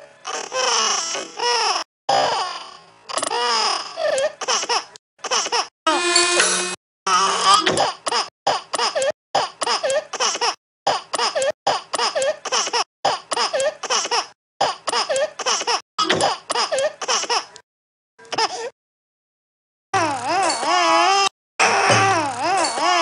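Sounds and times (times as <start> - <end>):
baby laughing: 0.2 - 5.7, 7.1 - 17.6.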